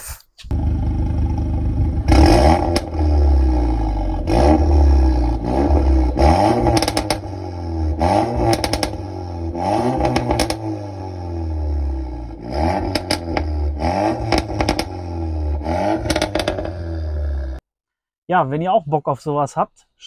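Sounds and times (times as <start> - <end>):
car engine revving: 0.5 - 17.6
exhaust crackling pops: 1.3 - 3.0, 5.4 - 7.4, 8.3 - 9.1, 10.0 - 10.7, 12.8 - 15.0, 15.9 - 16.9.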